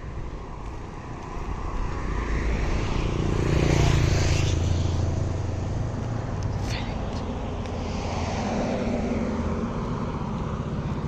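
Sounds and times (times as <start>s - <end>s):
vehicle passing by: 0.0s - 11.0s.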